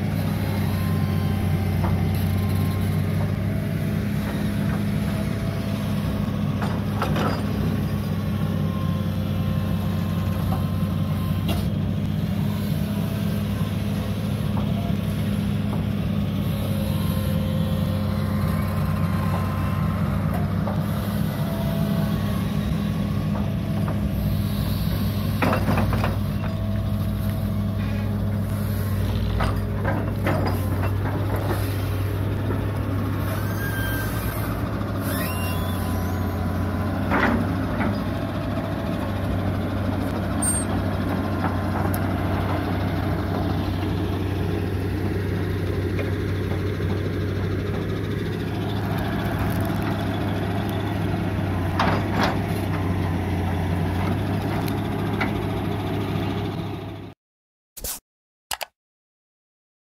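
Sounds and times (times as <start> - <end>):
whining hydraulics: 0.0 - 45.9
excavator diesel engine running: 0.0 - 57.2.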